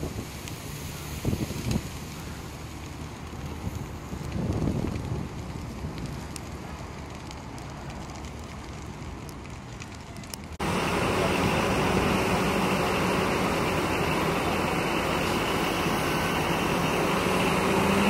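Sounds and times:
fire rumbling and crackling: 0.0 - 18.0
loud steady rushing noise: 10.6 - 18.0.

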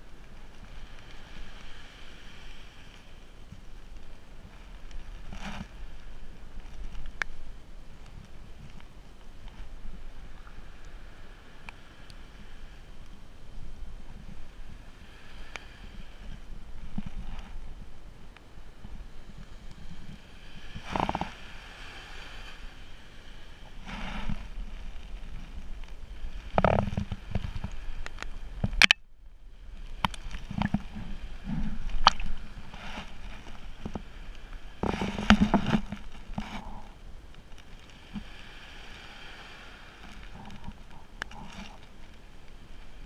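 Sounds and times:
waves lapping at shore: 0.0 - 43.0
wind on microphone: 12.3 - 37.4.

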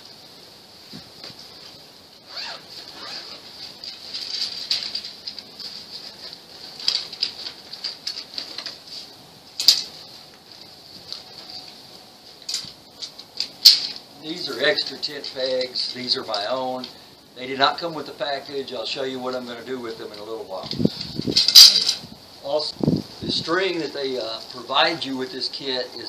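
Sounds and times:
steady high-pitched whine: 0.0 - 26.0
nylon bag rustling: 2.2 - 8.0
tent pegs clicking and clacking: 2.3 - 9.0, 9.6 - 11.8, 12.4 - 14.1, 20.1 - 22.1.

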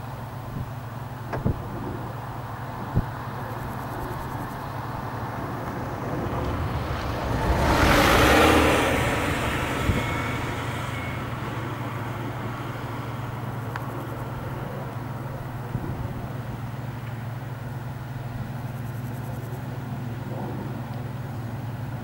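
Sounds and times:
combine harvester hum: 0.0 - 22.0
broad rushing noise: 1.2 - 18.2.

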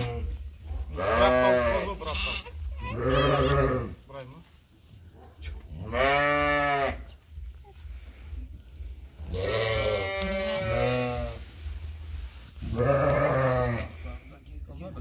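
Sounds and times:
lambs bleating: 0.0 - 4.0, 5.8 - 7.1, 9.2 - 11.4, 12.6 - 14.0.

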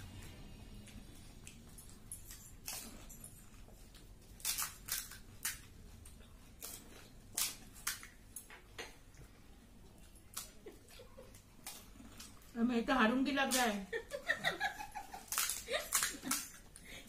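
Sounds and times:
crisp shells crunching: 4.3 - 5.7, 15.1 - 16.6.

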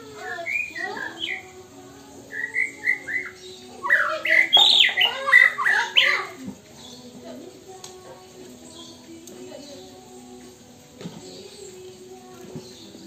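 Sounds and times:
bird singing whistles and chirps: 0.1 - 7.2, 11.2 - 13.0.

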